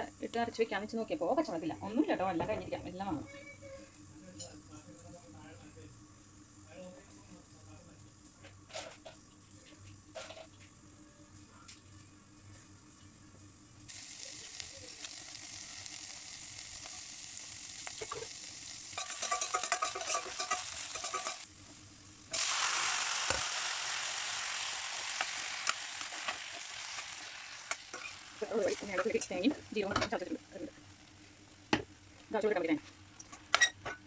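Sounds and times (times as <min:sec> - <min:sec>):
oil sizzling in a pot: 0:12.8 - 0:34.0
spatula scraping and stirring: 0:19.0 - 0:21.5, 0:25.1 - 0:29.5.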